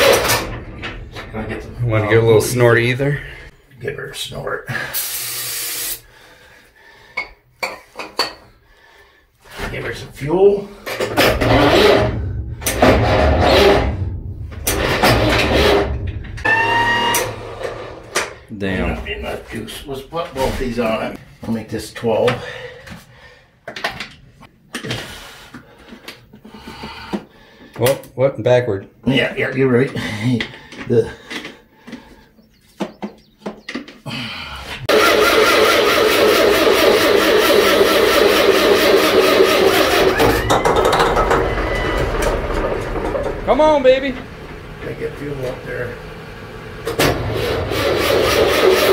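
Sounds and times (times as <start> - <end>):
high starter whine: 0.0 - 3.4, 10.9 - 19.6, 34.9 - 48.9
diesel engine cranking: 0.0 - 3.5, 10.8 - 18.5, 34.8 - 48.9.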